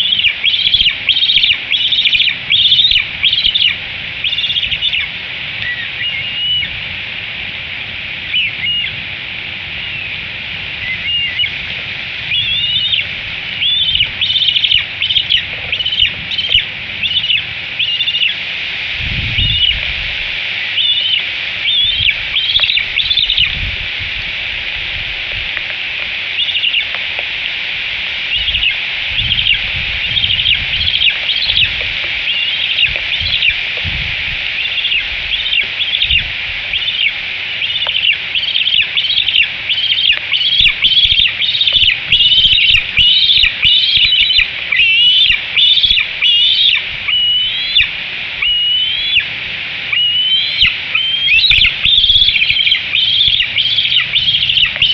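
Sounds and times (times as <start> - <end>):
eagle chirping: 0.0 - 6.8, 7.8 - 9.0, 9.8 - 10.2, 10.8 - 18.4, 19.3 - 20.0, 20.6 - 23.7, 26.3 - 27.0, 28.3 - 54.9
steady hiss: 0.0 - 54.9.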